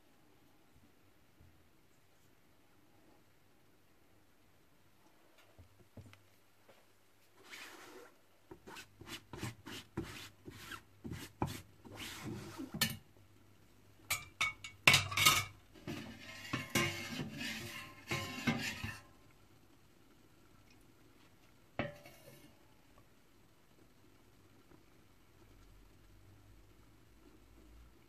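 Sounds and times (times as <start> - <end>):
metal utensils clinking on pans: 14.1 - 19.1, 21.8 - 22.4.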